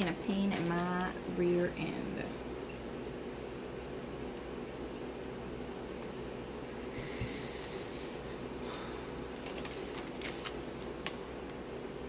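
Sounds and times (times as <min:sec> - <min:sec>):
room hum: 0:00.0 - 0:12.0
plastic sheet rustling: 0:00.3 - 0:01.3, 0:08.6 - 0:11.4.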